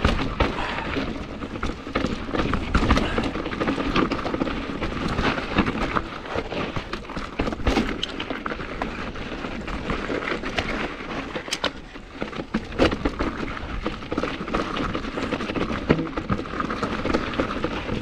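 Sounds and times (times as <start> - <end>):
mountain bike rattling over rock: 0.0 - 18.0
tyres rumbling: 0.0 - 18.0.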